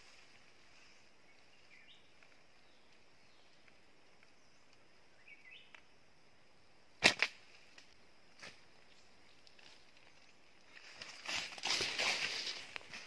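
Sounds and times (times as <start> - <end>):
faint steady high hiss: 0.0 - 13.0
faint bird chirps: 0.1 - 5.8.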